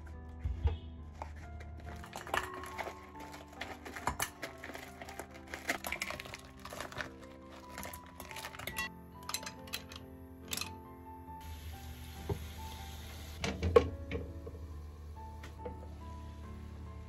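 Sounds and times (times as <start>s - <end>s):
background music: 0.0s - 17.0s
frozen mussels clattering into bowl: 1.2s - 10.6s.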